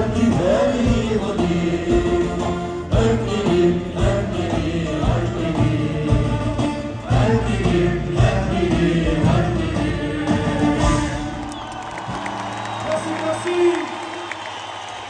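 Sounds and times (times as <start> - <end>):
people singing: 0.0 - 11.4
drums: 0.0 - 13.2
live band playing: 0.0 - 13.4.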